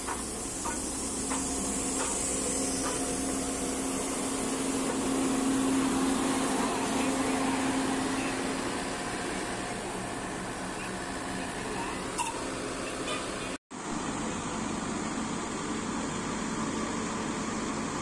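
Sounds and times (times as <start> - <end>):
steam hissing from locomotive: 0.0 - 9.6.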